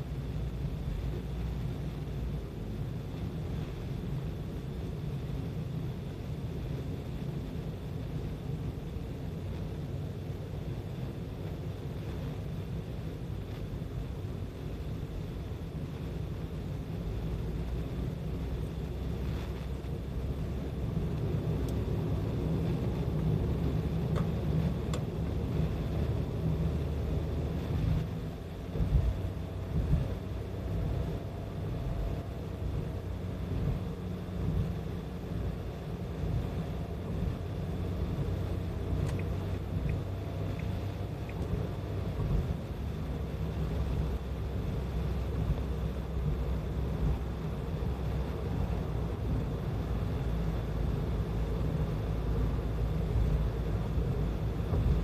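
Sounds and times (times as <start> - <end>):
road and engine rumble in car: 0.0 - 55.0
faint clicks: 39.0 - 41.6.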